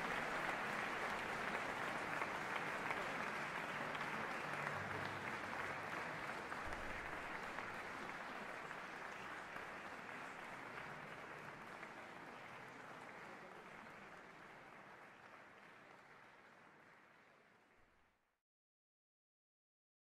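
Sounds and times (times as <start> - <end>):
audience applauding: 0.0 - 18.0.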